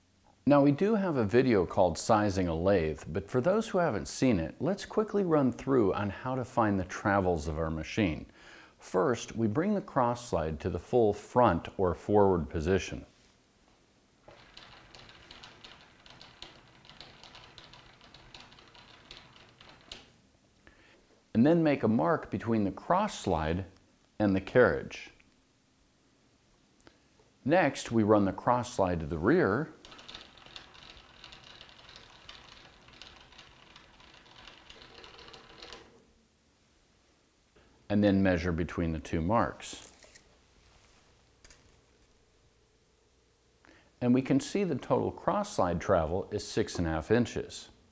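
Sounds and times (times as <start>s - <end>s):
handwheel feed screw clicking: 29.8s - 35.9s.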